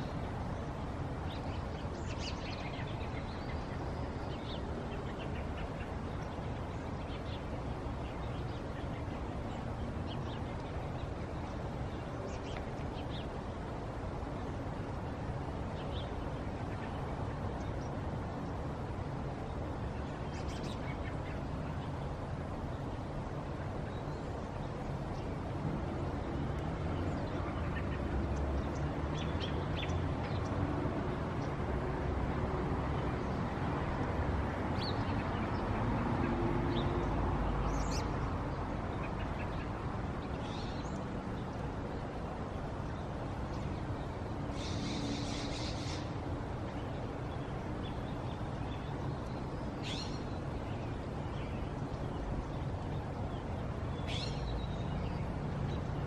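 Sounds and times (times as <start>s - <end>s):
bird calls: 44.5s - 46.2s, 47.9s - 50.9s.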